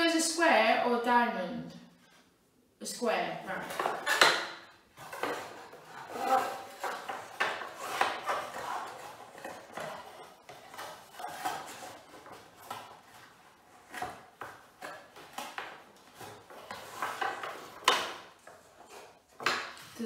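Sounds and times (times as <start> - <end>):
plastic track pieces scraping: 5.0 - 19.6.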